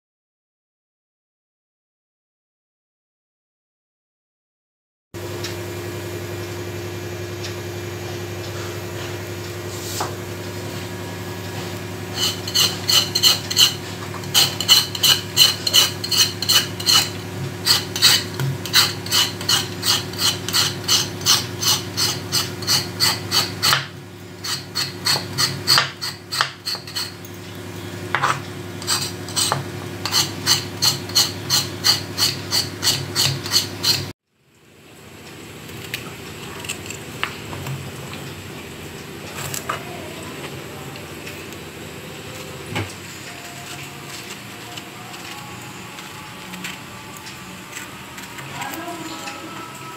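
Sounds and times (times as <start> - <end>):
steady low hum: 5.2 - 49.9
knife scraping gourd skin: 11.7 - 27.2, 28.2 - 34.1, 35.7 - 37.1.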